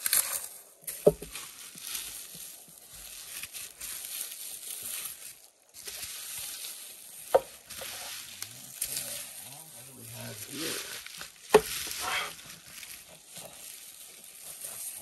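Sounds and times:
bubble wrap crinkling: 0.0s - 15.0s.

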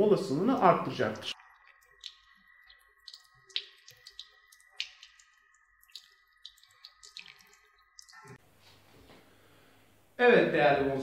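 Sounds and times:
faint steady hiss: 0.0s - 11.0s
water dripping onto hard surface: 0.6s - 8.4s.

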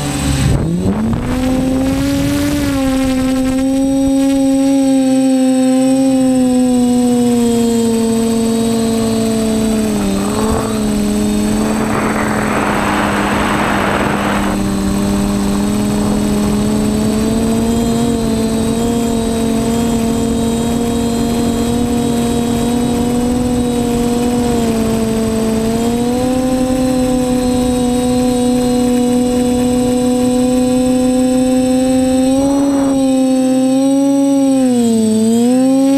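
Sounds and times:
drone motors whining: 0.0s - 35.9s
rushing noise: 9.7s - 17.0s.

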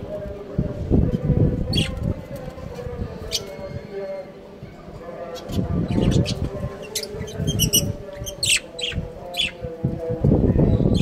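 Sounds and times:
budgies chirping: 3.2s - 4.0s, 5.2s - 9.7s.

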